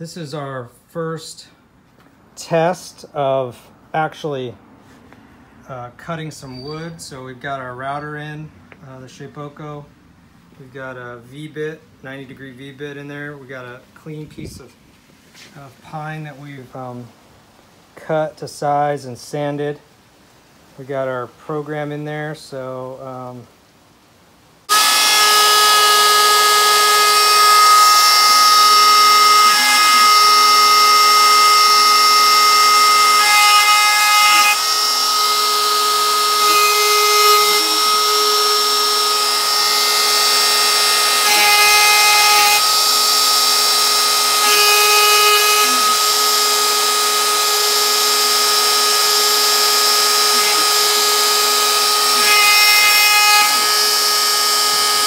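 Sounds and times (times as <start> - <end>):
machine lower tone: 24.7 - 55.0
router spindle high whine: 24.7 - 55.0.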